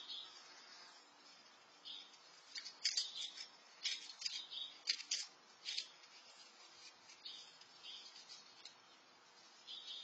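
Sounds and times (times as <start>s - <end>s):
squirrel crunching food: 1.9s - 8.8s.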